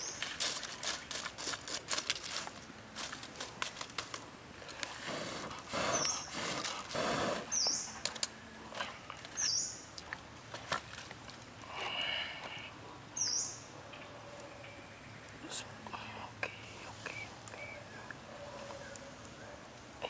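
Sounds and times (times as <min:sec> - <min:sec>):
bird chirping: 0:05.8 - 0:06.5, 0:07.4 - 0:08.1, 0:09.3 - 0:09.9, 0:13.1 - 0:15.6.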